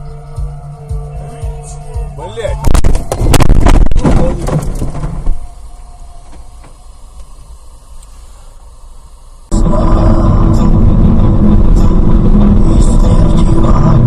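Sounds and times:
low hum inside a car: 0:00.0 - 0:14.0
knocks and clatter: 0:02.7 - 0:05.4.

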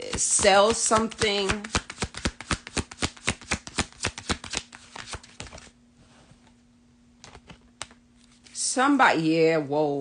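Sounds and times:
cards being shuffled: 0:00.0 - 0:05.8.

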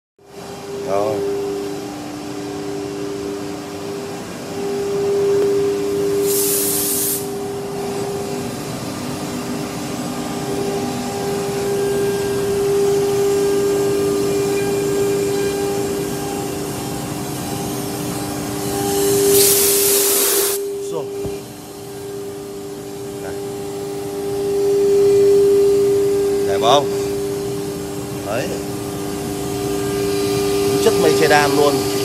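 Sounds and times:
wood router spindle whine: 0:00.5 - 0:32.0
burst of hissing air: 0:06.2 - 0:07.3, 0:19.1 - 0:20.6
dust extraction suction hiss: 0:06.2 - 0:07.3, 0:19.1 - 0:21.1.

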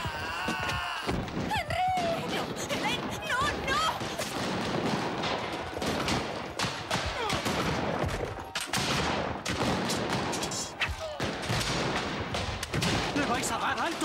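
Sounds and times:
faint shouting: 0:00.0 - 0:04.2
musket gunfire: 0:01.3 - 0:14.0.

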